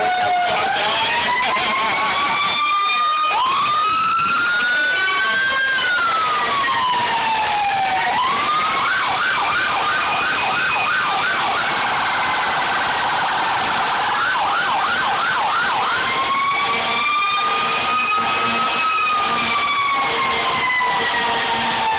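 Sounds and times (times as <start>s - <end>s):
emergency sirens wailing and yelping: 0.0s - 21.9s
fainter distant sirens: 0.0s - 21.9s.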